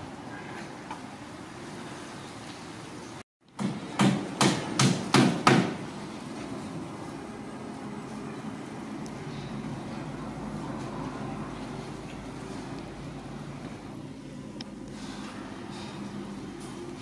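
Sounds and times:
sharp knocks: 0:03.6 - 0:05.8.

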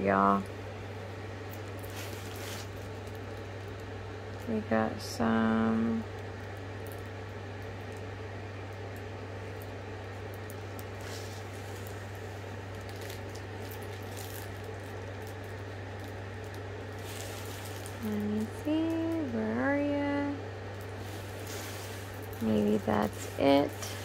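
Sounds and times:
low machine hum: 0:00.0 - 0:24.0
plastic film crinkling: 0:01.4 - 0:04.6, 0:09.5 - 0:20.0, 0:20.6 - 0:24.0.

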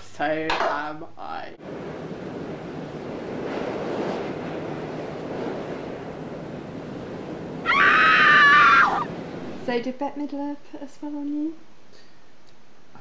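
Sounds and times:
rushing wind-like whoosh: 0:01.6 - 0:09.8
shrill scream-like cry: 0:07.6 - 0:09.1.

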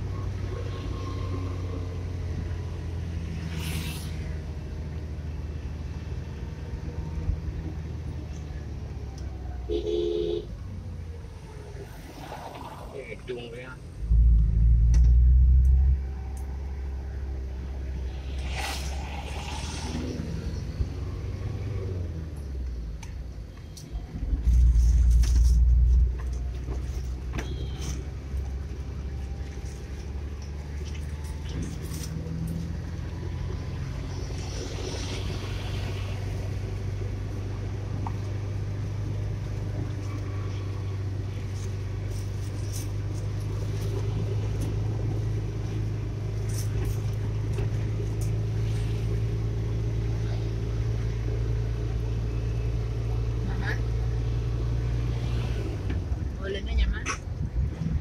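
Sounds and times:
car engine and tyre drone: 0:00.0 - 0:58.0
loud low rumble: 0:14.0 - 0:16.1.

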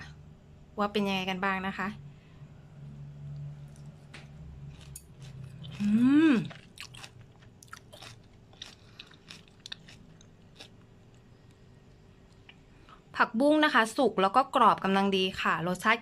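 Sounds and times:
crisp chewing crunches: 0:03.6 - 0:11.6
person humming mm: 0:05.8 - 0:06.5.

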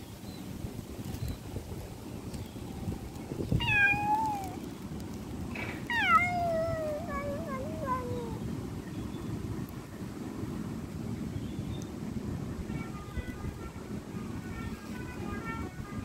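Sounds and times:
cat meowing: 0:03.5 - 0:04.6, 0:05.6 - 0:08.4.

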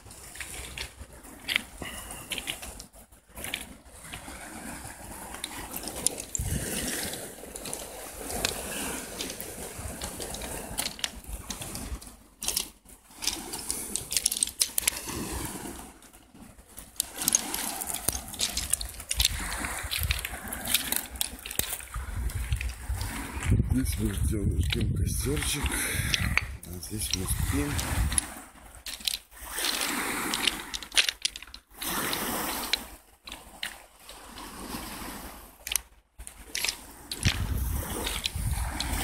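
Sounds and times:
footsteps on pebbles: 0:00.0 - 0:15.8, 0:16.4 - 0:34.9, 0:35.6 - 0:39.0.

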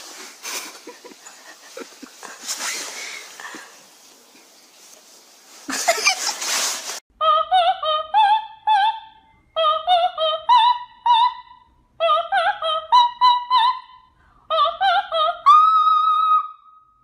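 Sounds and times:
high voice singing with vibrato: 0:07.2 - 0:16.7.

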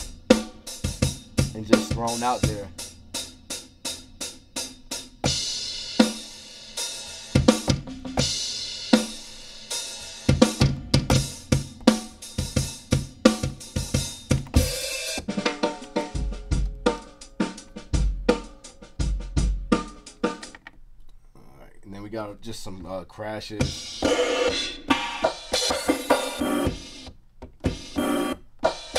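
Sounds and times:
heavy bass: 0:00.0 - 0:20.2
boom bap drum breaks: 0:00.0 - 0:20.6, 0:23.6 - 0:28.9.

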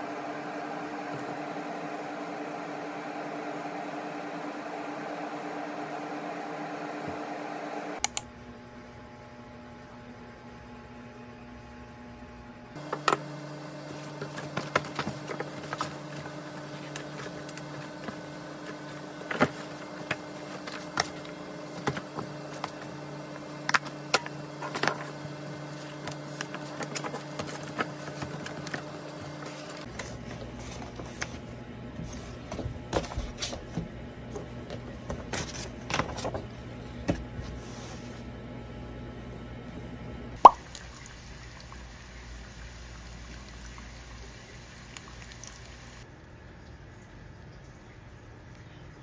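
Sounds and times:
papers rustling: 0:25.8 - 0:31.4
steady hum: 0:36.0 - 0:46.1.

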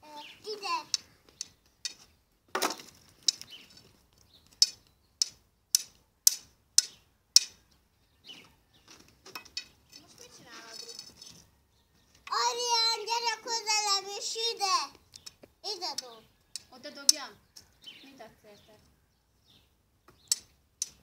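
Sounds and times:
stick tapping on branches: 0:00.7 - 0:07.6, 0:14.9 - 0:17.7, 0:20.0 - 0:21.0.

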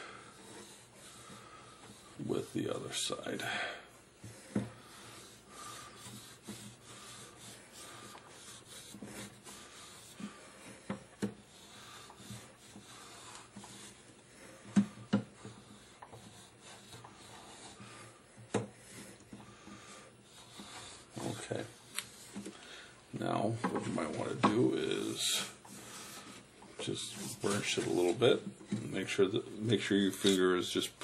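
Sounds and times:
burnisher rubbing on brass: 0:00.0 - 0:03.4, 0:04.4 - 0:14.7, 0:15.3 - 0:22.4, 0:24.8 - 0:28.2.

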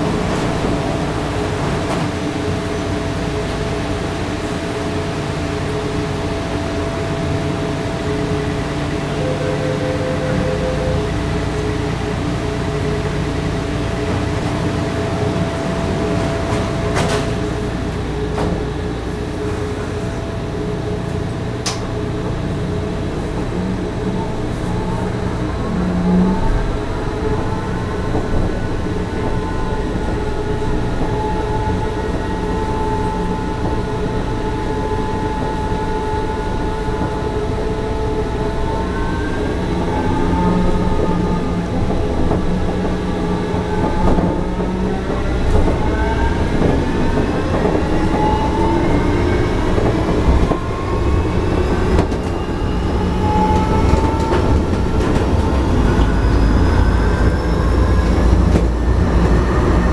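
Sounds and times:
train running rumble: 0:00.0 - 0:59.9
traction motors whining: 0:06.8 - 0:59.9
door warning tone: 0:07.7 - 0:11.7.

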